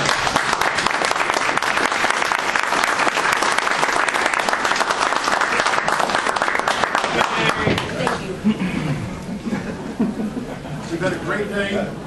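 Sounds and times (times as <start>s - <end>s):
audience applause: 0.0s - 8.4s.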